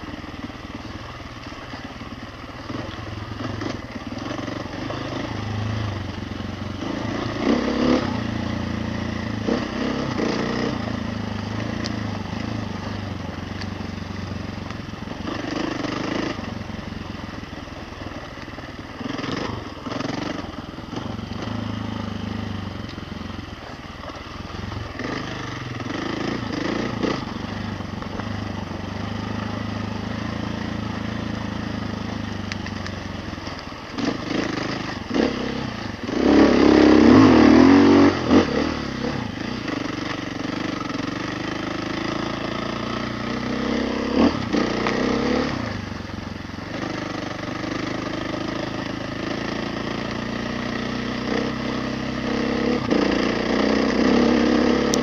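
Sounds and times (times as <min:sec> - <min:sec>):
motorcycle engine revving: 0:00.0 - 0:55.0
motorcycle engine running: 0:00.0 - 0:55.0.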